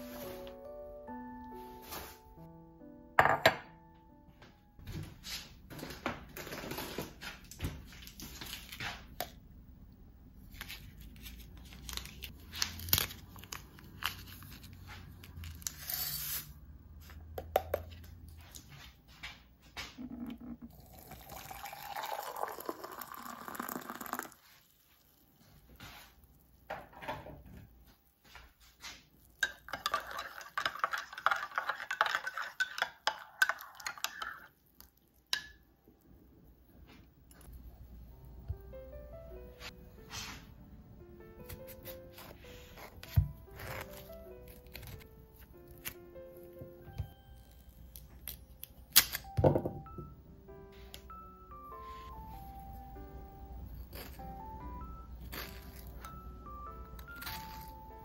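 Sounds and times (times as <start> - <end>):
liquid pouring into mug: 20.2 - 24.6
metal spoon stirring in mug: 29.4 - 34.6.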